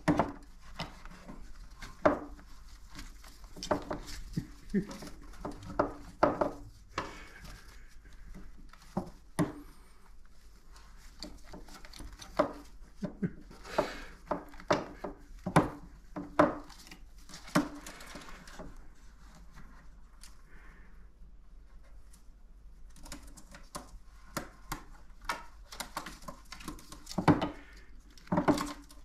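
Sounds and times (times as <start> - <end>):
taps and knocks on wooden toy house: 0.0 - 2.4, 3.5 - 7.2, 8.8 - 9.7, 11.2 - 17.9, 23.4 - 29.0.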